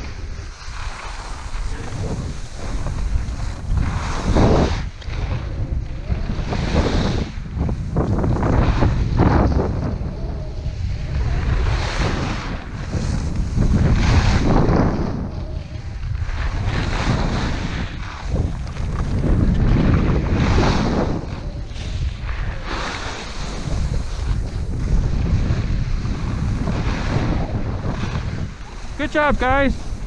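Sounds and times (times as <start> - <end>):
skis swishing on snow: 0.0 - 5.4, 16.1 - 30.0
wind buffeting microphone: 0.0 - 30.0.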